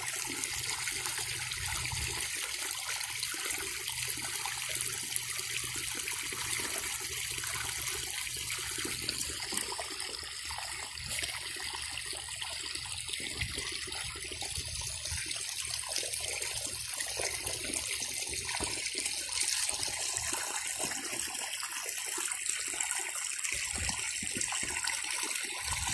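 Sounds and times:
water flowing and trickling: 0:00.0 - 0:25.9.

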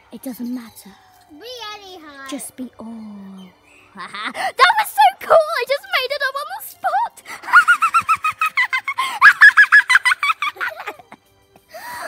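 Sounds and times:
girl giggling: 0:07.4 - 0:11.2.

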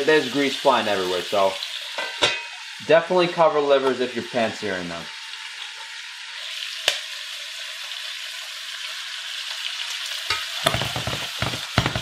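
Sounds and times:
livers sizzling in fat: 0:00.0 - 0:12.0
grease popping and crackling: 0:10.3 - 0:12.0.

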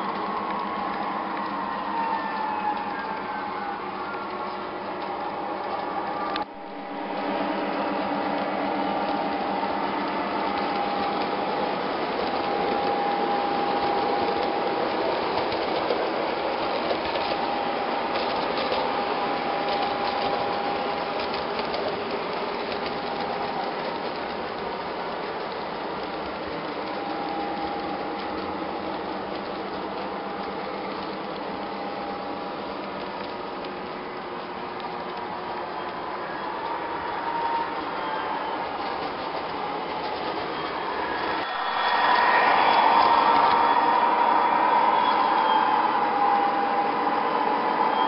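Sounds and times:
toy train wheels clattering on rails: 0:00.0 - 0:48.0
whining tone: 0:35.8 - 0:48.0.

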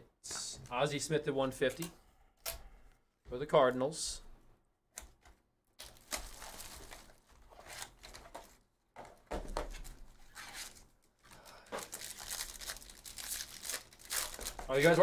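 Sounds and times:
foil packs crinkling and tearing: 0:05.8 - 0:08.4, 0:10.3 - 0:15.0.

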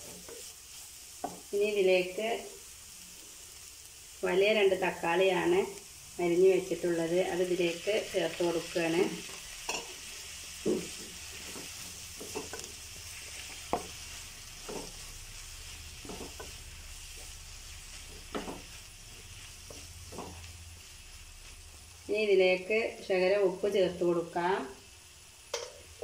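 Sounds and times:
vegetables sizzling in oil: 0:00.0 - 0:26.0
wooden spatula scraping pan: 0:10.6 - 0:15.1, 0:15.8 - 0:20.6.

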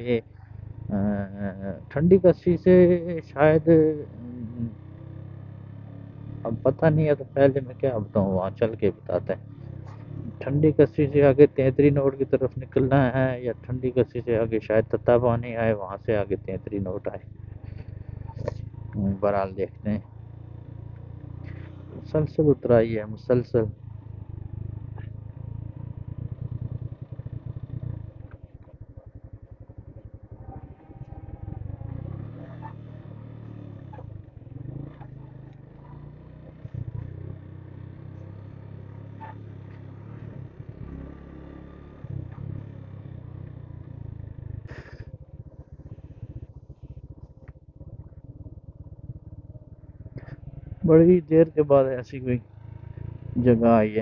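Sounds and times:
motorcycle engine at low revs: 0:00.0 - 0:54.0.

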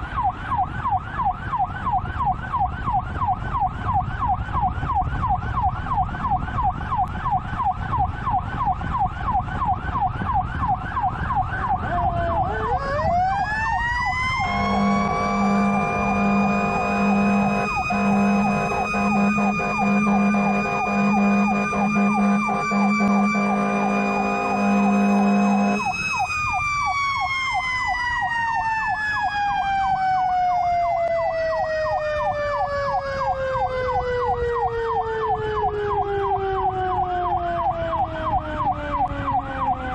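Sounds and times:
fire truck siren yelping: 0:00.0 - 0:39.9
siren high wail: 0:00.0 - 0:39.9
truck road rumble: 0:00.0 - 0:39.9
horn blasts: 0:14.3 - 0:25.9.

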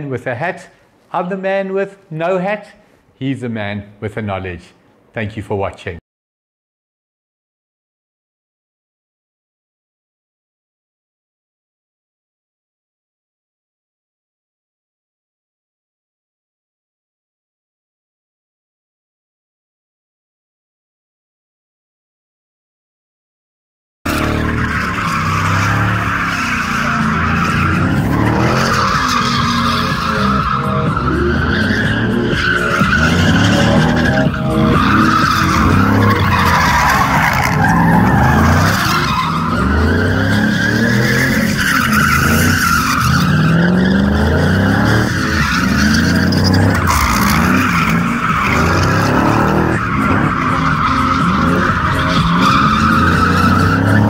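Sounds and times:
car engine revving: 0:24.1 - 0:54.0
tyres screeching: 0:24.1 - 0:54.0.

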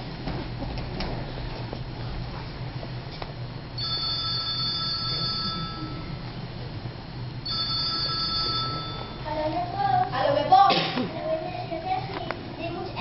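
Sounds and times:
telephone ringing: 0:03.8 - 0:06.2, 0:07.4 - 0:09.3.

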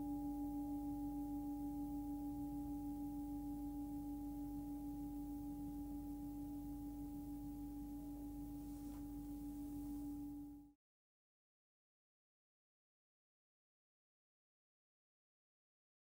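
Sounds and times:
singing bowl ringing: 0:00.0 - 0:10.7.

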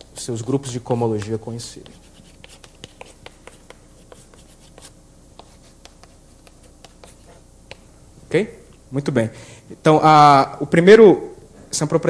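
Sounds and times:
pen writing by hand: 0:01.8 - 0:07.3.

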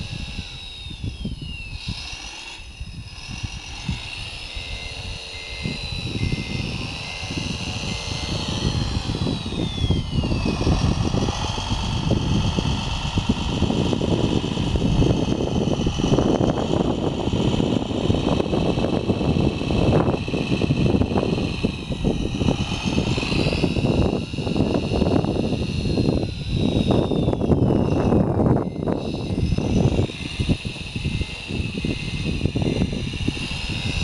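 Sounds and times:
toy electric motors whining: 0:00.0 - 0:34.0
wind on microphone: 0:00.0 - 0:34.0.

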